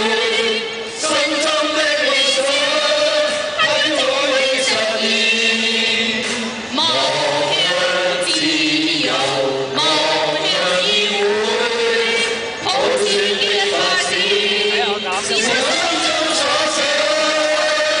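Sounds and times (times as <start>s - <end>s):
group singing in unison: 0.0s - 18.0s
men singing over loudspeaker: 0.0s - 18.0s.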